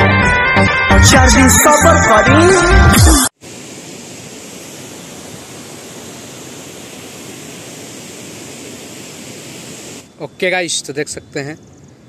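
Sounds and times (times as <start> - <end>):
floodwater rushing: 3.4 - 10.1.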